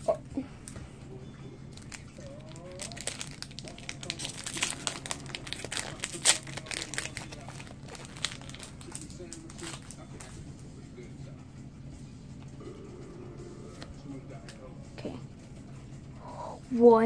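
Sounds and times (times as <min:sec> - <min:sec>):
foil wrapper tearing and crinkling: 0:01.7 - 0:10.3.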